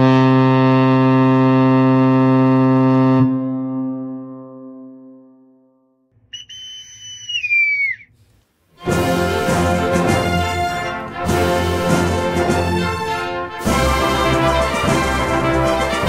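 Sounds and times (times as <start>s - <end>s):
deep ship horn blast: 0.0s - 5.5s
high shrill whistle: 6.3s - 8.1s.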